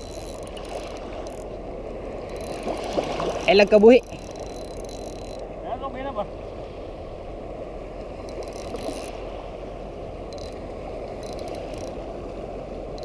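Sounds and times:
fishing reel clicking: 0:00.0 - 0:01.6, 0:02.2 - 0:05.5, 0:08.2 - 0:09.2, 0:10.3 - 0:12.0.

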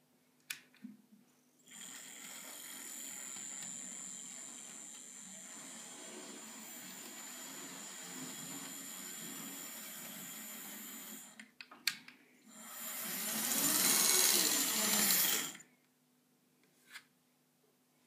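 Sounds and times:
model train motors whirring: 0:01.7 - 0:11.4, 0:12.5 - 0:15.6.

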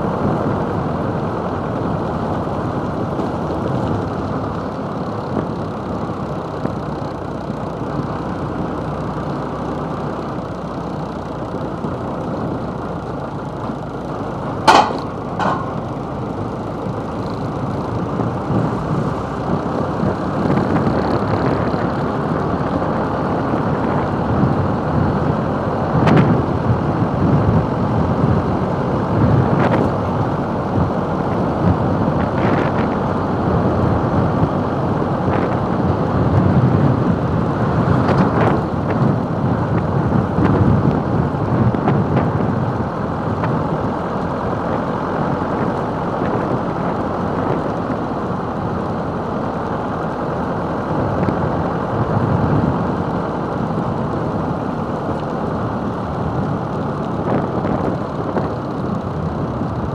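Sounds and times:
road noise: 0:00.0 - 0:59.9
wind rushing over microphone: 0:11.2 - 0:59.9
sharp knocks: 0:14.7 - 0:15.8.

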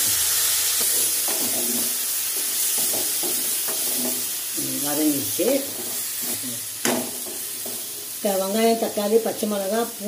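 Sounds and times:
vegetables sizzling in oil: 0:00.0 - 0:10.0
spatula scraping pan: 0:00.8 - 0:04.4.

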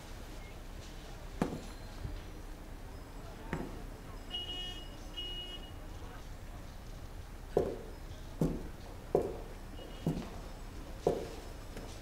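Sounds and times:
sharp knocks or footfalls: 0:01.4 - 0:01.7, 0:07.5 - 0:10.4, 0:11.0 - 0:11.9.

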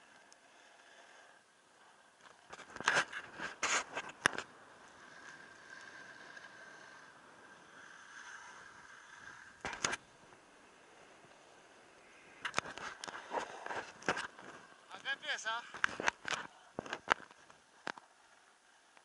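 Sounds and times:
scraping on snow: 0:02.6 - 0:07.1
hiss of gliding on snow: 0:05.0 - 0:09.6.

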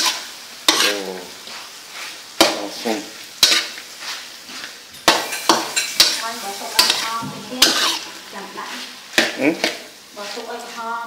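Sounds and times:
metal spatula clanking on pan: 0:00.0 - 0:01.0, 0:03.4 - 0:03.8, 0:05.0 - 0:08.2, 0:09.1 - 0:09.9
food sizzling in pan: 0:00.0 - 0:11.0.

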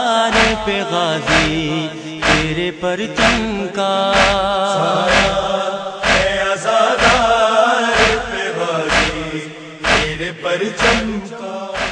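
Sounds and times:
man chanting a lament: 0:00.0 - 0:11.9
deep drum beat: 0:00.3 - 0:03.6, 0:04.2 - 0:06.4, 0:07.0 - 0:07.4, 0:08.0 - 0:11.2.

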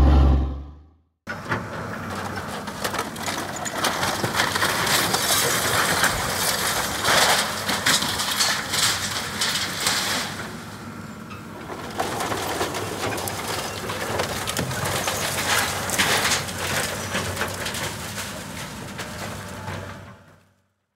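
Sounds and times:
diesel engine humming: 0:00.0 - 0:00.9
debris crunching and crackling: 0:02.0 - 0:10.9, 0:11.6 - 0:20.2.

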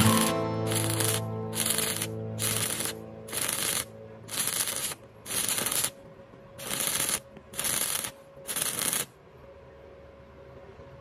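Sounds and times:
welding arc crackling: 0:00.0 - 0:06.0, 0:06.6 - 0:09.1.

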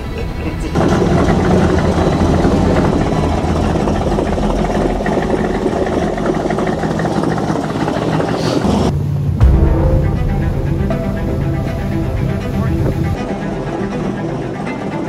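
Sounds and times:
boat engine running: 0:00.0 - 0:15.0
water washing along hull: 0:00.2 - 0:10.3.

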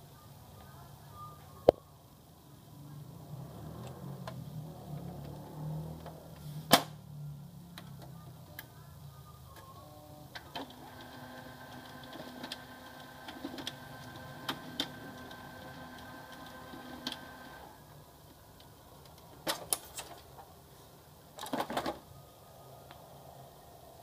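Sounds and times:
printer mechanism whirring: 0:10.3 - 0:18.0.

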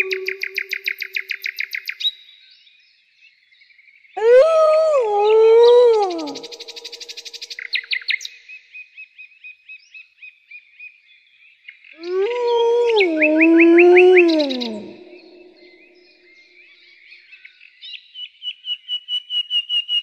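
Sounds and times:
wolf howling: 0:00.0 - 0:00.8, 0:04.2 - 0:07.0, 0:12.0 - 0:15.7
birds chirping and trilling: 0:00.0 - 0:02.0, 0:04.2 - 0:08.1, 0:12.0 - 0:16.1.

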